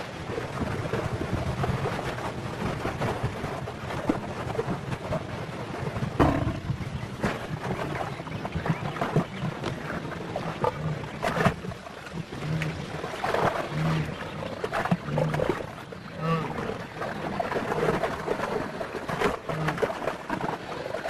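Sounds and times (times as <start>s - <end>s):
thrashing and splashing water: 0.0s - 21.0s
lioness growling: 6.2s - 6.8s, 13.7s - 16.8s.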